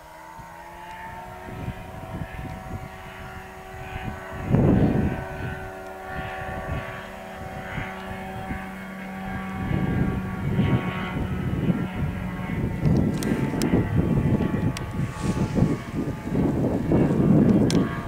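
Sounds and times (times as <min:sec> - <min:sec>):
light airplane engine and propeller: 0:00.0 - 0:18.0
loud rushing noise: 0:14.9 - 0:17.2.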